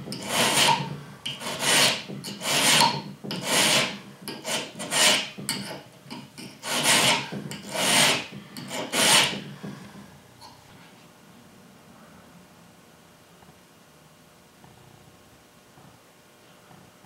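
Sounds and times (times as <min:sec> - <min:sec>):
hand file rasping on steel: 0:00.1 - 0:09.5.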